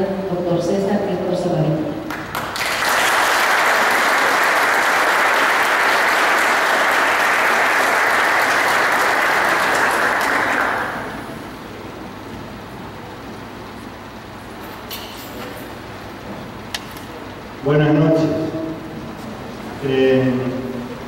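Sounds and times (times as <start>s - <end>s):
audience applauding: 2.1s - 11.4s.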